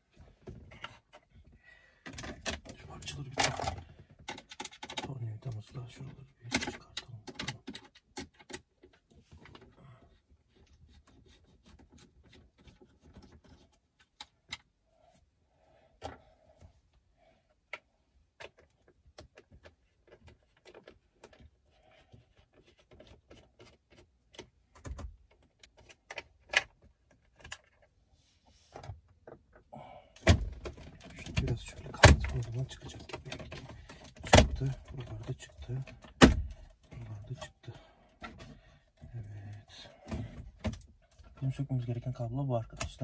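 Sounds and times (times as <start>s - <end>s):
plastic trim clicks and knocks: 30.2s - 35.1s.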